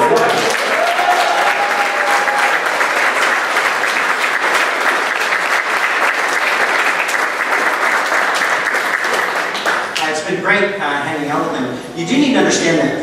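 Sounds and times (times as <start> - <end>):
congregation applauding: 0.0 - 10.3.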